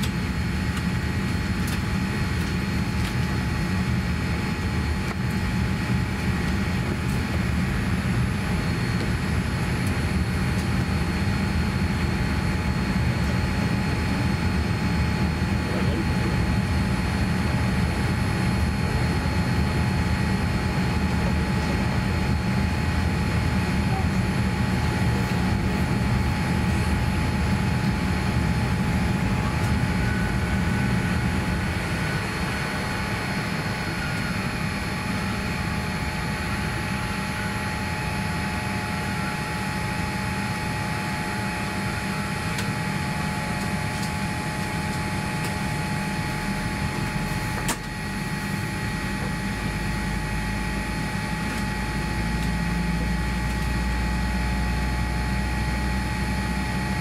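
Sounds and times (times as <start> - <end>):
air-conditioning hum: 0.0 - 57.0
thin whine tones: 21.5 - 57.0.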